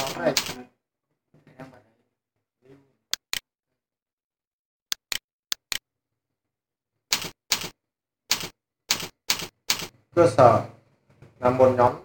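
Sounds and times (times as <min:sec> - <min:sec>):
keyboard typing: 0:00.0 - 0:00.6, 0:07.1 - 0:09.9
sharp mouse clicks: 0:04.9 - 0:05.8, 0:07.1 - 0:07.7, 0:08.3 - 0:09.9.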